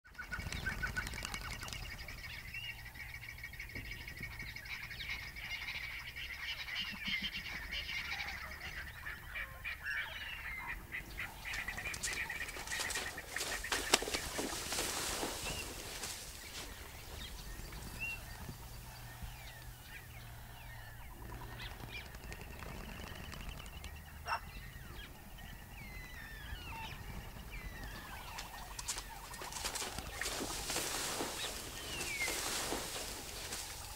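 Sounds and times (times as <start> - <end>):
birds chirping and whistling: 9.9 - 33.9.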